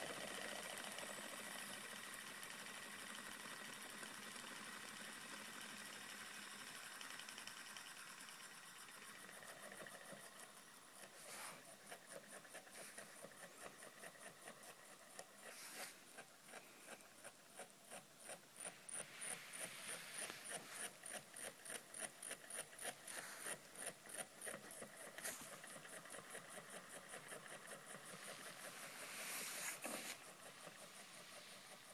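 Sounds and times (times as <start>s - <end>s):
solenoid engine clicking: 0.0s - 31.9s.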